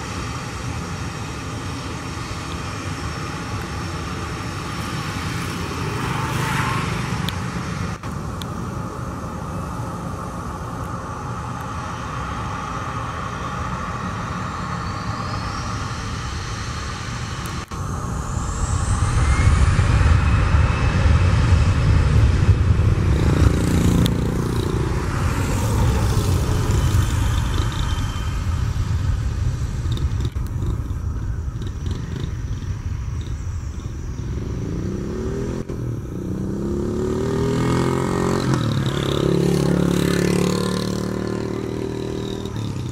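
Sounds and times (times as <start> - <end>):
jet engines spooling up: 0.0 - 40.6.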